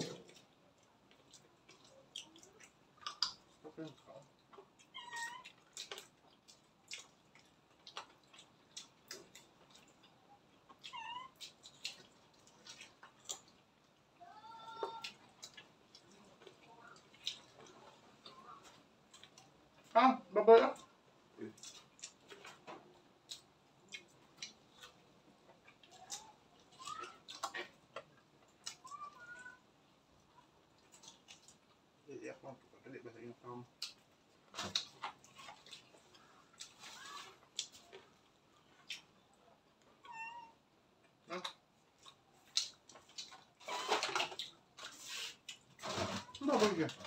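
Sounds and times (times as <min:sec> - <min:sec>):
people chewing with lip smacks: 0:00.0 - 0:20.0, 0:20.8 - 0:32.1, 0:33.5 - 0:47.0
cat meowing: 0:04.8 - 0:05.5, 0:10.8 - 0:11.4, 0:40.0 - 0:40.6
rustling: 0:34.4 - 0:38.9.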